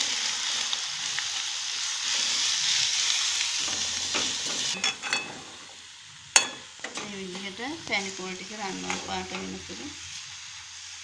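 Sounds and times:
coconut sizzling in pan: 0.0 - 11.0
spoon stirring in metal pan: 8.6 - 9.8.

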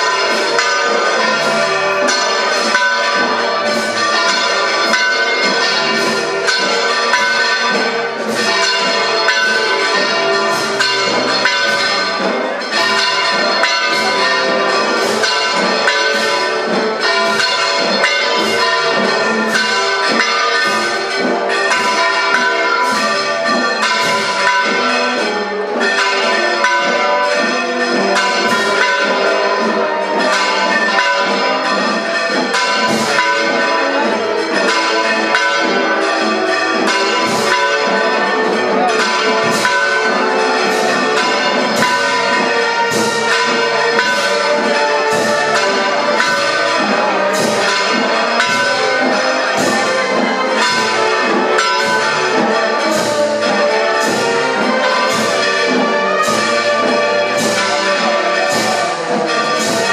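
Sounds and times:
church bells ringing: 0.0 - 59.9.

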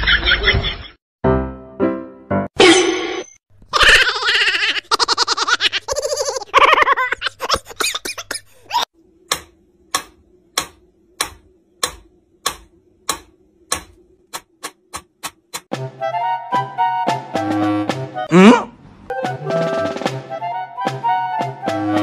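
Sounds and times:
metronome ticking: 9.3 - 15.7.

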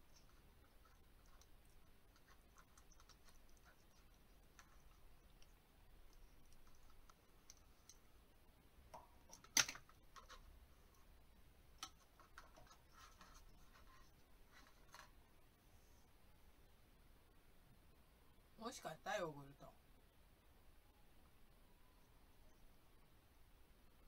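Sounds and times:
beak clicking and scratching plastic: 0.0 - 8.2, 8.9 - 11.1, 11.7 - 15.2.

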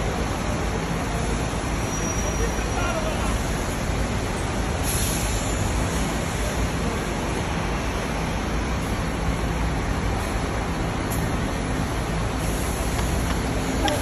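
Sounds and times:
bus engine and tyre rumble: 0.0 - 14.0
short air hiss: 4.8 - 5.6.

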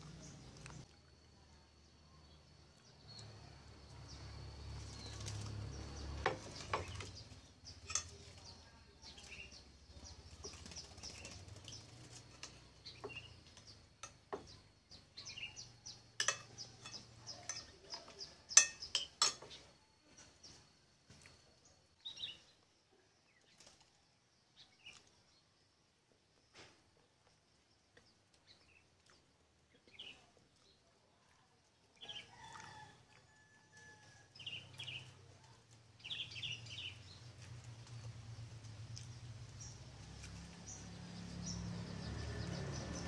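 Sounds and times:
spoon clinking on plates: 7.8 - 8.3, 16.2 - 19.6.

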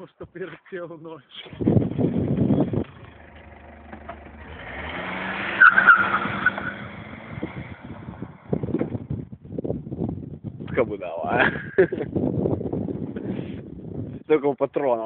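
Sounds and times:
car driving past: 2.9 - 8.7.

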